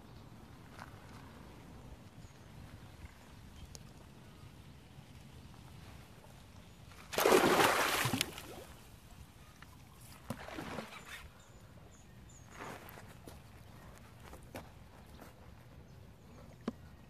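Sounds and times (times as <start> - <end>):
weak water splashing: 7.0 - 8.8, 10.2 - 11.2
loud water splash: 7.1 - 8.6.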